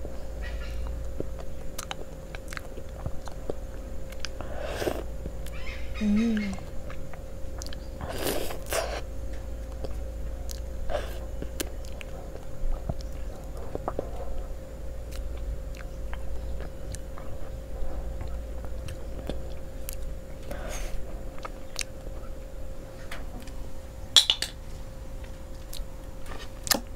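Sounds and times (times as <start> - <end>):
low electrical hum: 0.0 - 26.9
biting and chewing ice cream: 0.6 - 5.6, 6.4 - 22.7, 25.1 - 26.9.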